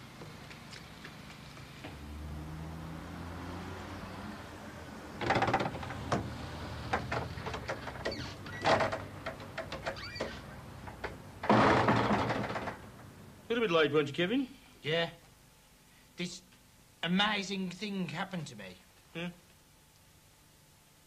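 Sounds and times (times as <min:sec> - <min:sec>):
wooden door knocking and rattling: 0:05.2 - 0:12.9
door squeaks: 0:07.1 - 0:10.6, 0:11.4 - 0:12.8.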